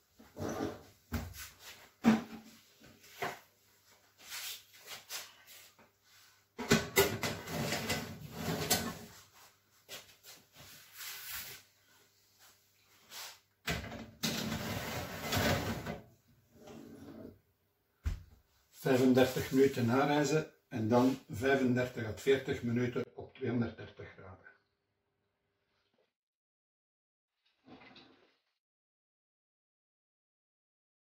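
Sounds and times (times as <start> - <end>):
metal trays sliding and clattering: 7.2 - 9.1, 14.2 - 16.0.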